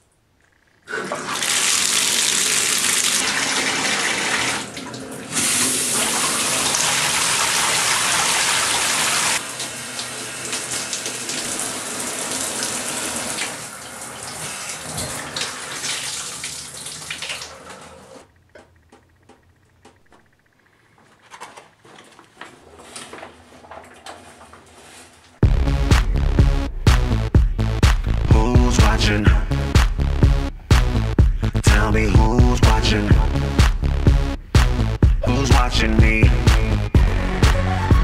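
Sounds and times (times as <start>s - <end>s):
water running hard: 1.0s - 17.8s.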